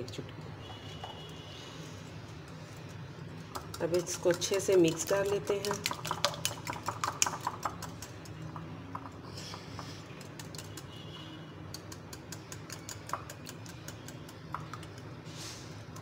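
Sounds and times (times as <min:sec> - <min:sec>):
whisk clicking against glass bowl: 0:03.6 - 0:08.3, 0:11.7 - 0:15.1.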